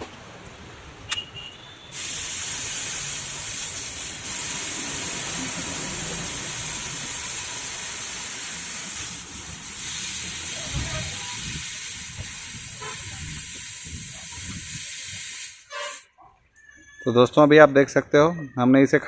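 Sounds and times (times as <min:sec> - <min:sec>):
air hissing out of a tyre: 0:01.8 - 0:16.1.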